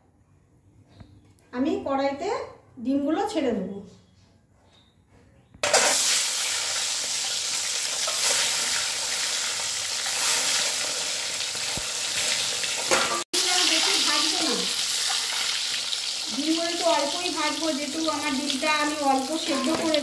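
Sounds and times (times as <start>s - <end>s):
eggs sizzling in hot oil: 5.6s - 20.0s.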